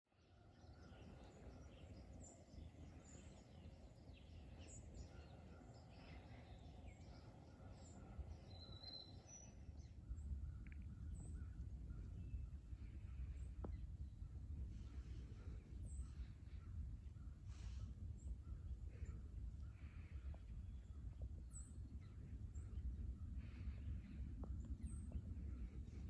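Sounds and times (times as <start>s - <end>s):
bird chirps: 0.4s - 14.0s
low steady rumble: 0.6s - 26.0s.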